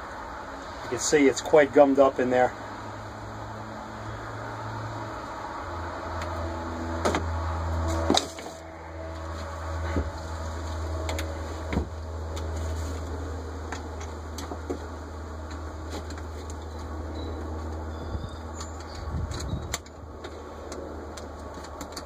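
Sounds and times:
low hum: 2.5 - 22.0
metal parts clicking and knocking: 18.6 - 22.0.

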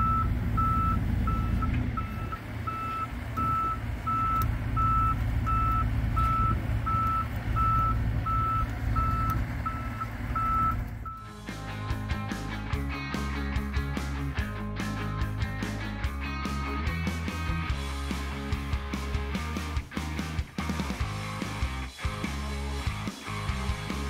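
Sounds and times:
motion alarm beeping: 0.0 - 11.3
diesel engine hum: 0.0 - 24.0
music: 11.2 - 24.0.

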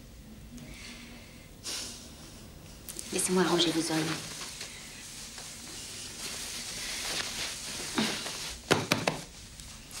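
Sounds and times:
pillows and bedclothes rustling: 3.2 - 8.7.

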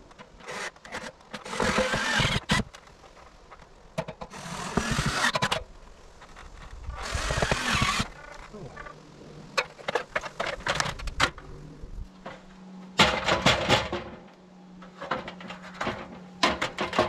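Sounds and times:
power drill driving screws: 0.4 - 2.7, 4.3 - 5.6, 7.0 - 8.1.

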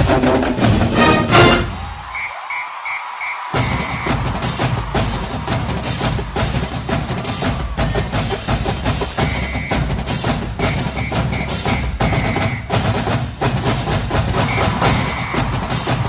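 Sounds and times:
fast dense drumming: 3.5 - 16.0.

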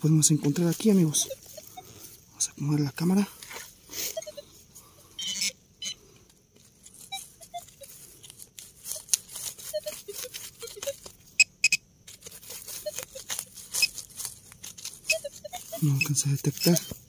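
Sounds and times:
metal detector high tones: 0.5 - 2.0, 3.9 - 4.6, 5.2 - 6.0, 6.9 - 8.0, 8.8 - 11.8, 12.4 - 14.0, 14.8 - 17.0
soil scraping and crunching: 6.5 - 11.3, 12.0 - 17.0.

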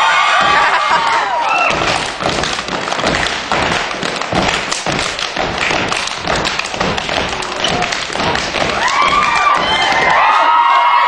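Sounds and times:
crowd cheering and whooping: 0.0 - 1.9, 8.3 - 11.0
feet stomping on wooden stage: 0.1 - 10.7
clapping and body slapping: 0.4 - 10.6.

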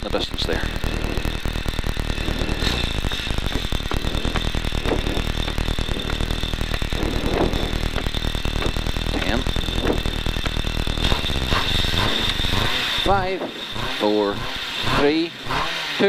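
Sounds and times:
rally car engine idling: 0.0 - 16.0.

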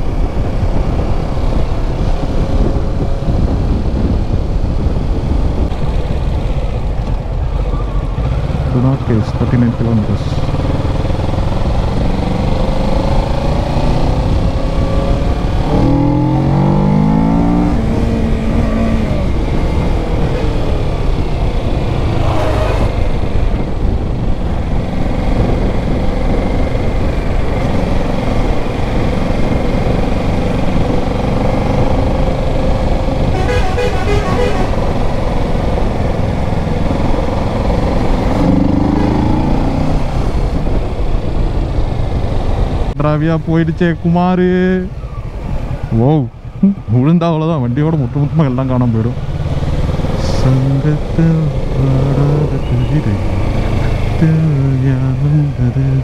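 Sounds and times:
motorcycle engine running: 0.0 - 42.9
road noise: 0.0 - 56.0
vehicle horn: 33.2 - 35.0.

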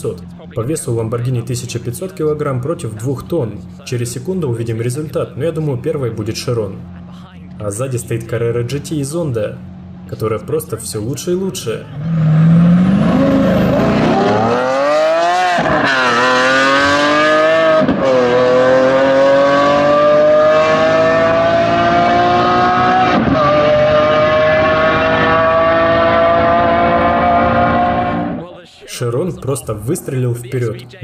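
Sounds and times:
sports cars accelerating hard: 11.8 - 28.5.

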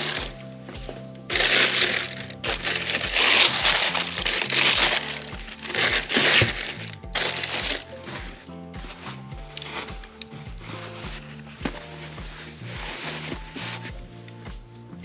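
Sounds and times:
tissue paper crinkling: 0.0 - 10.0
background music with steady beat: 0.0 - 15.0.

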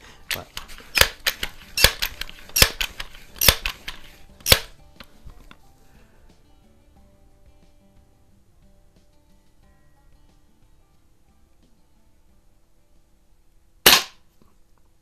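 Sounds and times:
faint music: 0.0 - 15.0
air gun pump lever clacks: 0.3 - 4.7.

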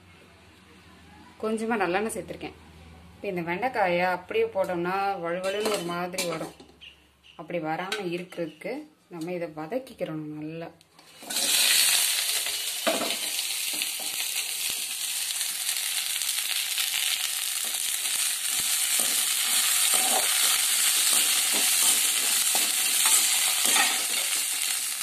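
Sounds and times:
metal spoon scraping a pan: 5.4 - 6.6, 11.0 - 14.9, 17.6 - 24.9
okra sizzling in oil: 11.0 - 25.0.

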